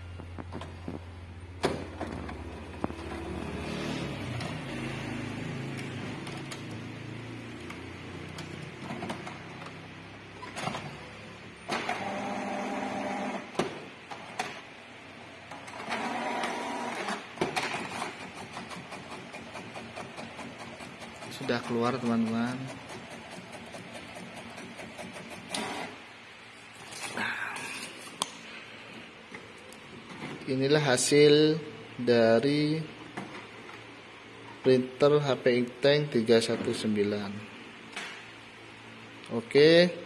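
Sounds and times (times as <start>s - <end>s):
inkjet printer whirring and clicking: 11.6s - 14.6s, 15.5s - 26.0s.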